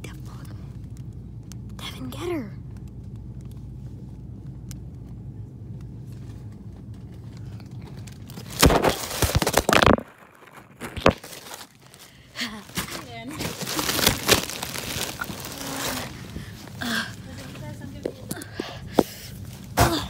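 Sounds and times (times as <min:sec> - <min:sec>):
low steady hum: 0:00.0 - 0:20.0
plastic wrapping crinkling: 0:06.0 - 0:19.8.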